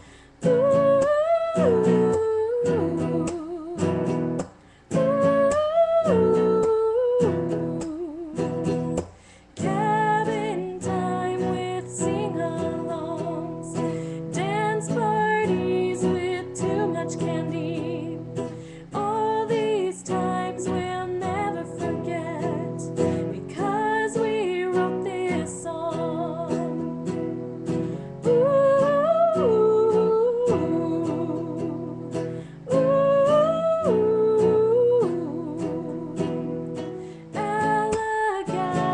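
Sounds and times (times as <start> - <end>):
strummed acoustic guitar: 0.0 - 38.9
woman singing: 0.0 - 38.9.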